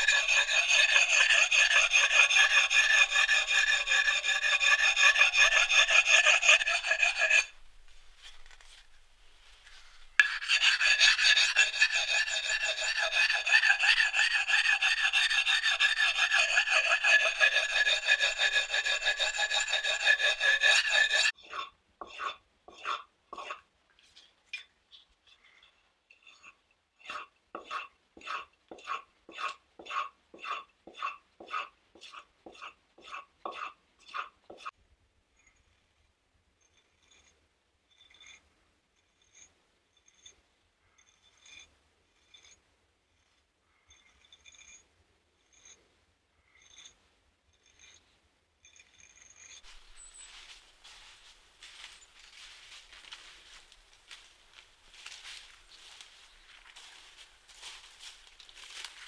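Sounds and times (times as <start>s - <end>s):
axe being sharpened: 0.0s - 7.6s, 10.1s - 23.6s, 26.3s - 34.7s.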